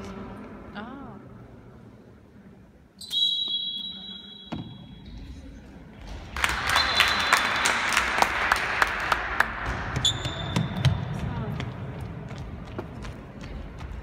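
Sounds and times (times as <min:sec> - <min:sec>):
referee's whistle: 0:03.0 - 0:04.8, 0:06.7 - 0:07.8, 0:10.0 - 0:10.8
people clapping: 0:06.0 - 0:10.0
ball bouncing: 0:09.5 - 0:14.0.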